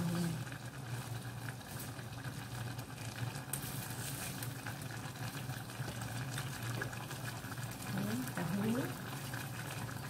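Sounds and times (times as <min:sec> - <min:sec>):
curry bubbling in a pot: 0:00.0 - 0:10.0.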